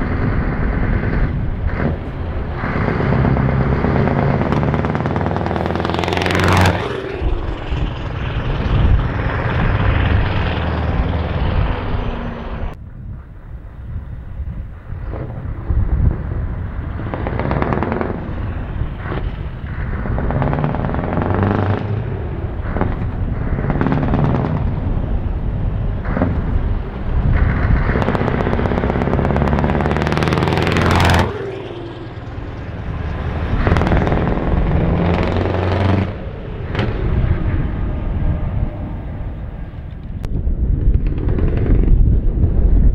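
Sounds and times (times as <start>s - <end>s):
truck diesel engine revving: 0.0s - 12.8s, 16.3s - 39.8s.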